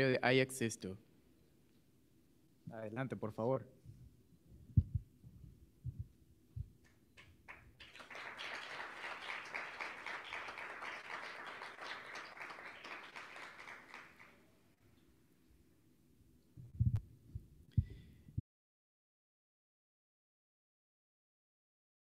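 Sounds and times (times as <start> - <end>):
low thumps: 4.6 - 6.8, 16.6 - 18.0
audience applauding: 7.4 - 14.5.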